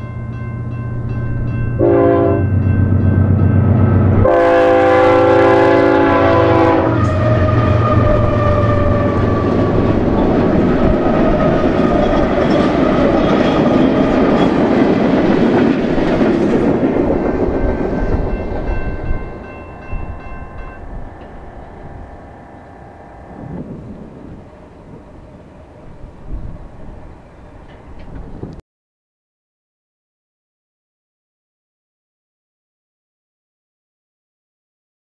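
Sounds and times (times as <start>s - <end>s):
diesel locomotives passing: 0.0s - 28.6s
multi-chime air horn: 1.8s - 2.6s
steel wheels on rails: 6.9s - 28.6s.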